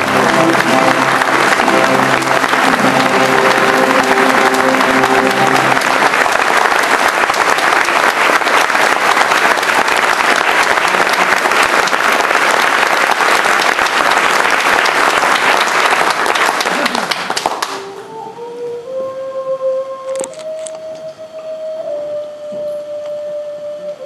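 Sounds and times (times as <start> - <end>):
sustained musical chord: 0.0 - 7.8
audience applauding: 0.0 - 17.9.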